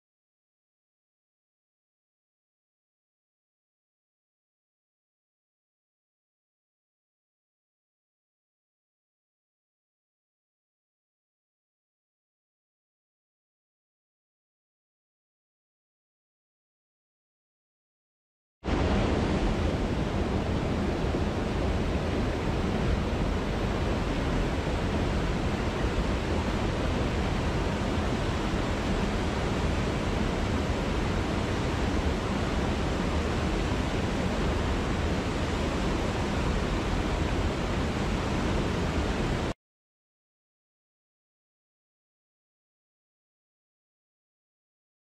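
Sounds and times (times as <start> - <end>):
water rushing over rocks: 18.7 - 39.5.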